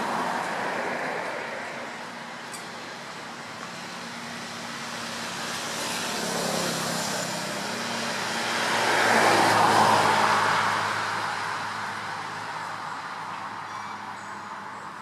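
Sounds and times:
motor vehicle passing: 0:03.0 - 0:13.3.

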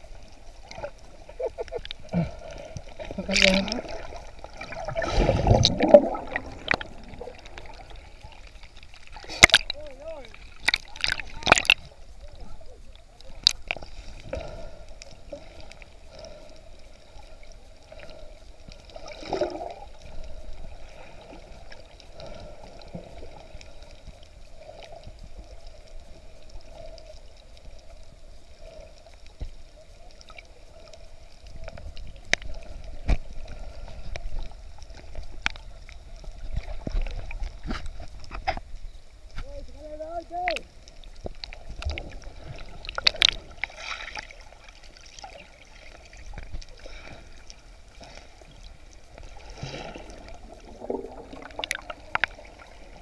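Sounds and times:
faint underwater hum: 0:00.0 - 0:53.0
low underwater rumbling: 0:00.0 - 0:53.0
water gurgling: 0:00.0 - 0:53.0
underwater clicks and knocks: 0:05.4 - 0:07.8, 0:09.3 - 0:11.9, 0:31.6 - 0:33.3, 0:36.4 - 0:39.5, 0:42.8 - 0:43.8, 0:51.0 - 0:52.4.

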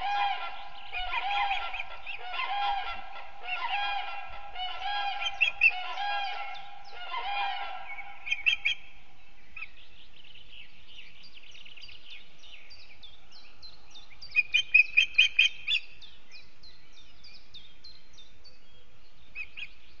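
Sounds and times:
bird honking call: 0:00.0 - 0:08.8
sharp bird calls: 0:00.0 - 0:10.5.

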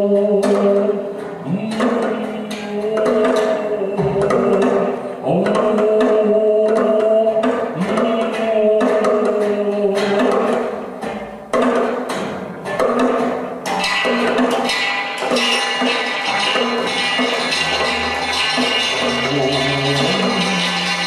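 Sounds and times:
sharp percussive clicks and taps: 0:00.3 - 0:21.0
man droning low tones: 0:17.5 - 0:21.0.

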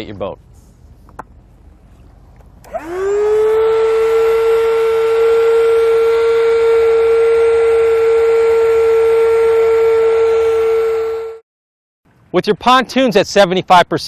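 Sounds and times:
electric air pump humming: 0:02.6 - 0:11.4.

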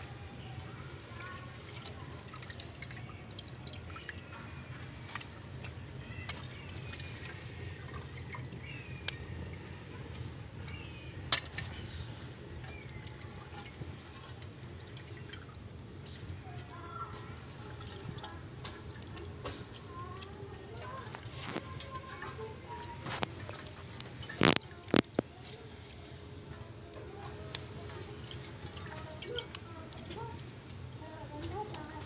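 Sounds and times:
liquid splashing and dripping: 0:00.0 - 0:32.0.

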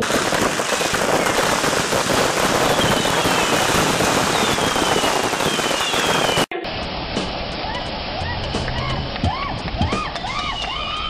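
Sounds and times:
fireworks whistling: 0:00.0 - 0:06.6
fireworks crackling and popping: 0:00.0 - 0:10.9.

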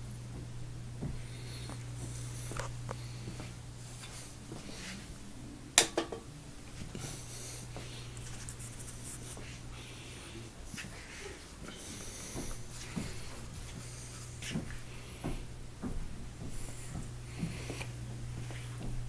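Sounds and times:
steady low hum: 0:00.0 - 0:19.0
faint rustling and scratching: 0:06.8 - 0:15.2.

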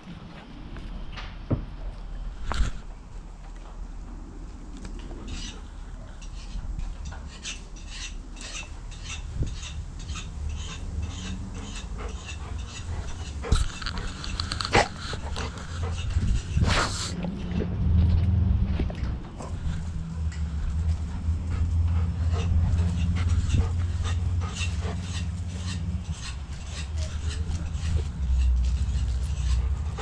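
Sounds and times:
low rumble of camera movement: 0:00.0 - 0:30.0
dog panting: 0:08.4 - 0:17.5, 0:19.3 - 0:30.0.

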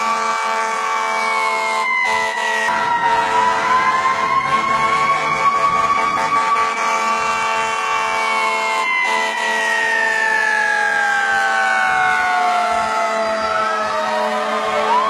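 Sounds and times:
siren wailing: 0:00.0 - 0:15.0.

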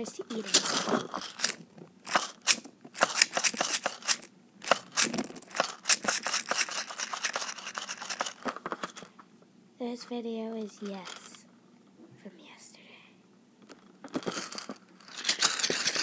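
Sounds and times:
beads crackling in balloon: 0:00.0 - 0:09.0, 0:13.8 - 0:16.0.

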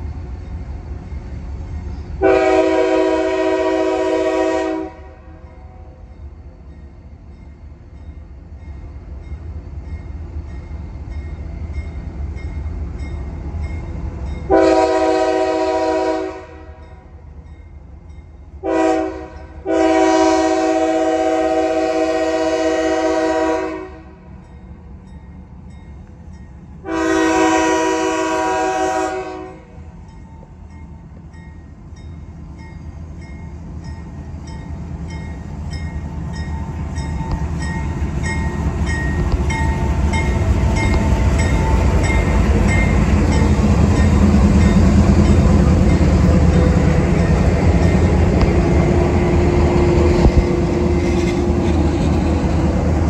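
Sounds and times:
locomotive air horn blasts: 0:02.2 - 0:05.4, 0:14.5 - 0:16.8, 0:18.6 - 0:24.3, 0:26.8 - 0:29.8
crossing bell ringing: 0:05.5 - 0:14.8, 0:30.0 - 0:48.4
locomotive low rumble: 0:29.6 - 0:53.0.

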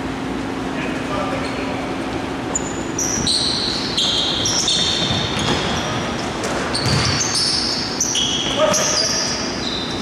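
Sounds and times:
shoes squeaking on wooden court: 0:01.3 - 0:10.0
basketball bouncing: 0:04.0 - 0:07.8.

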